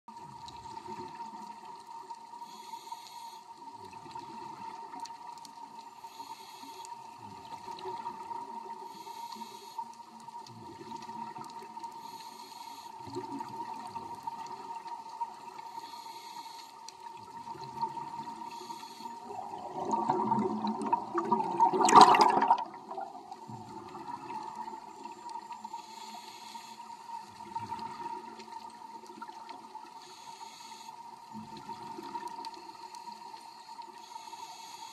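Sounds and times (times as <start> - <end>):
steady underwater hum: 0.1 - 34.9
underwater regulator bubbles: 17.0 - 25.5
rush of bubbles: 19.1 - 25.5.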